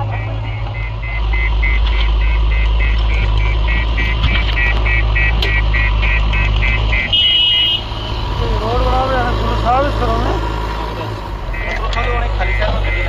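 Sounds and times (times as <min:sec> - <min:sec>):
reversing alarm beeping: 0:00.0 - 0:07.8, 0:11.4 - 0:13.0
diesel engine running: 0:00.0 - 0:13.0.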